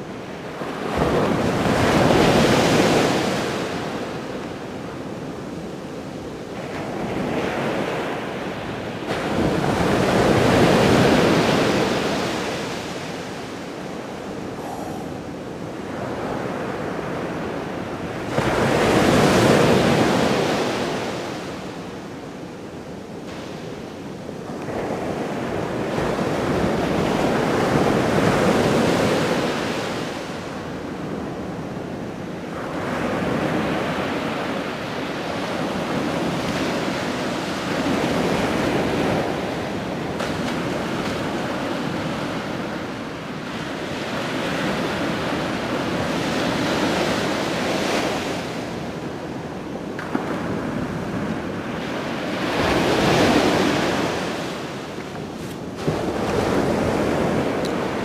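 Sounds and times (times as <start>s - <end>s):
ocean surf breaking: 35.4s - 58.0s.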